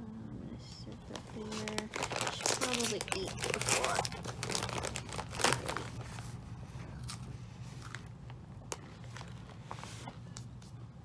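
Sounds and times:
cracker crunching: 0:01.2 - 0:09.6.

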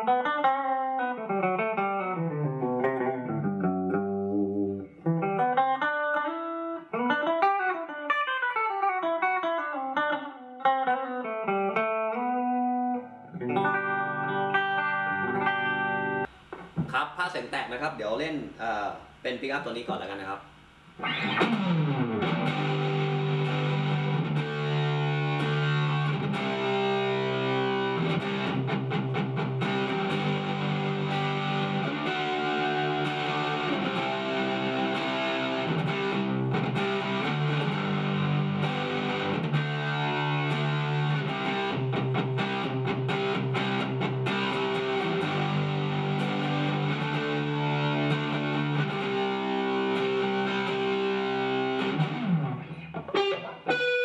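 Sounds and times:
distorted electric guitar riff: 0:00.0 - 0:17.0, 0:20.5 - 0:54.0.

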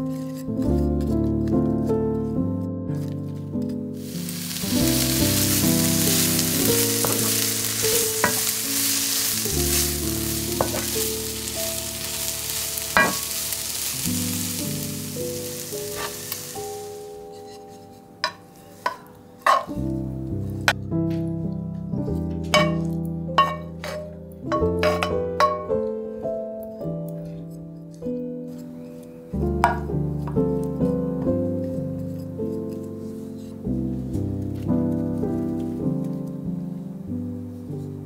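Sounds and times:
background music: 0:00.0 - 0:38.0
vegetables sizzling in a pan: 0:04.0 - 0:19.8, 0:22.5 - 0:25.7
wooden spatula knocking pan: 0:04.3 - 0:14.8, 0:18.2 - 0:19.8, 0:22.5 - 0:25.8, 0:29.6 - 0:30.4.

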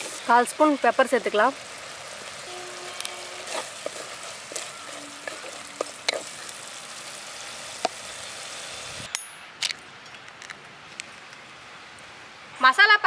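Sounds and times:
masala sizzling in a pot: 0:00.0 - 0:09.1
spatula scraping a pot: 0:02.5 - 0:06.5.

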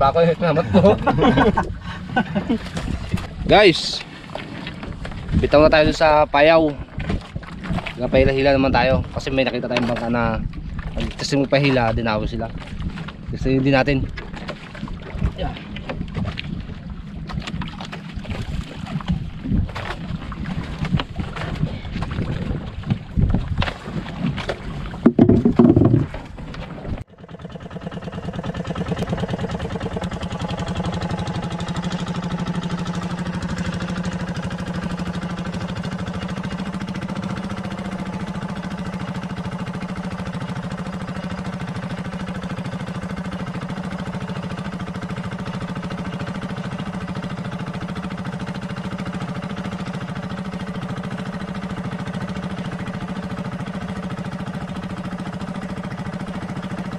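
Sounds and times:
boat engine droning: 0:00.0 - 0:56.9
wind on microphone: 0:04.8 - 0:09.2, 0:14.8 - 0:27.0
knocks on microphone: 0:25.0 - 0:26.2.

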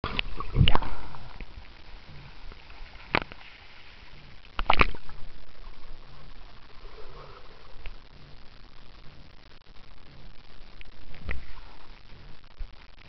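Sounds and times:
muffled water sloshing: 0:00.0 - 0:08.0.

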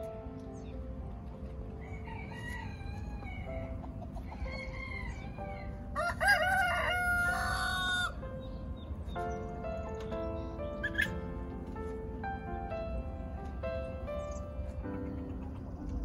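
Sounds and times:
rooster crowing: 0:01.8 - 0:03.7, 0:04.3 - 0:08.2.

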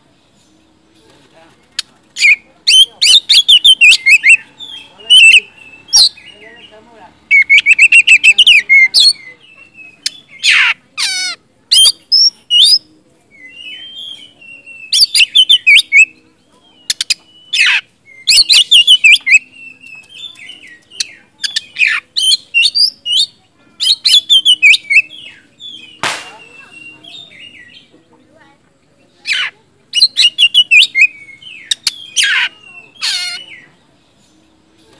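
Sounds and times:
bird singing whistled phrases: 0:02.2 - 0:06.3, 0:07.3 - 0:10.6, 0:11.7 - 0:27.9, 0:29.9 - 0:33.7.

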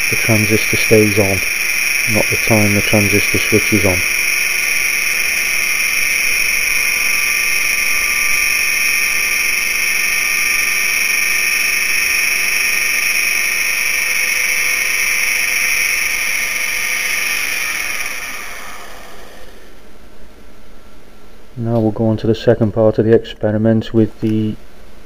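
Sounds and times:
motor high-pitched whine: 0:00.0 - 0:20.0.

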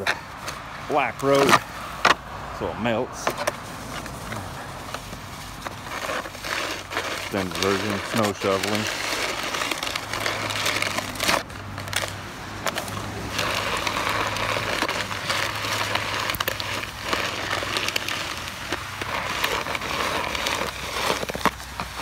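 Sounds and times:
snow shovel scraping concrete: 0:00.0 - 0:02.1, 0:02.9 - 0:22.0.

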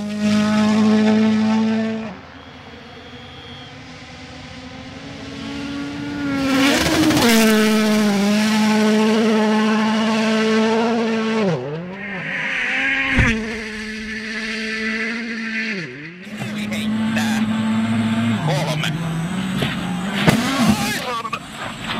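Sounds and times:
rally car engines revving: 0:00.0 - 0:21.9
sharp bang: 0:12.6 - 0:14.9.

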